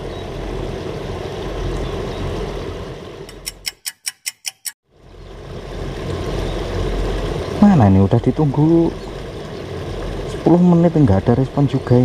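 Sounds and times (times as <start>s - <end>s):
outdoor background hiss: 0.0s - 3.6s, 4.9s - 12.0s
clock ticking: 3.3s - 4.8s.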